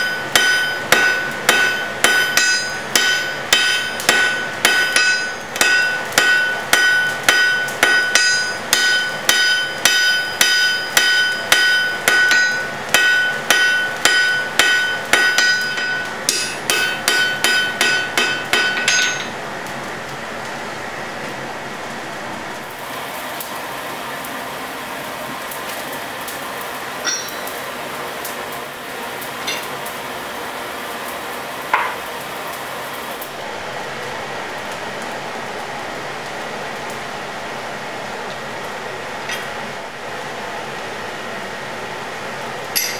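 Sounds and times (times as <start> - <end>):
hammer striking anvil: 0.0 - 19.4, 27.0 - 27.6, 29.5 - 29.7, 31.7 - 32.0.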